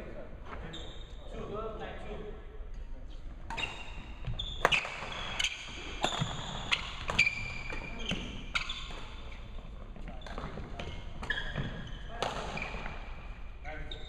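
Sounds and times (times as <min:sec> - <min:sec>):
sneakers squeaking on wooden floor: 0:00.5 - 0:01.3, 0:03.5 - 0:14.0
rackets hitting shuttlecock: 0:03.5 - 0:09.4, 0:10.0 - 0:13.4.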